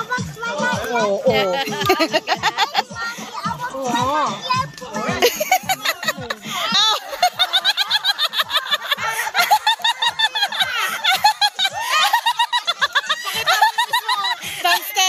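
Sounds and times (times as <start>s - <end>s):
laughter in quick bursts: 1.5s - 2.9s, 5.2s - 14.9s.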